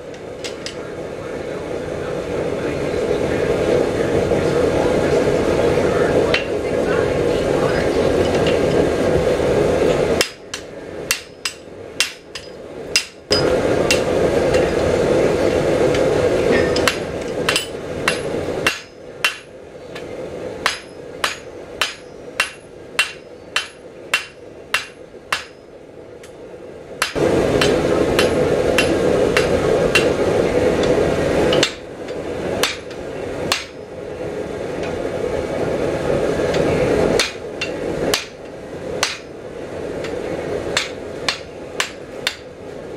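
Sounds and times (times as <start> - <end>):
steady rushing noise: 0.0 - 42.9
hammer striking steel anvil: 10.2 - 14.8, 16.5 - 19.5, 20.6 - 25.7, 27.0 - 30.2, 31.5 - 31.8, 32.6 - 33.8, 37.2 - 38.4, 39.0 - 39.3, 40.8 - 42.5.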